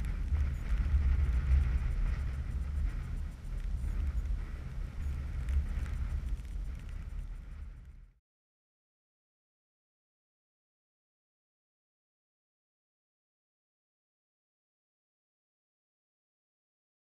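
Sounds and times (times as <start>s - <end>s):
wind buffeting microphone: 0.0s - 8.1s.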